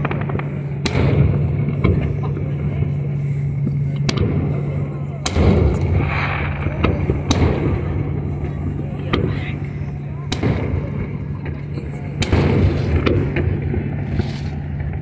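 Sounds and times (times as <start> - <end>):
fireworks booming: 0.0 - 15.0
steady low hum: 0.0 - 15.0.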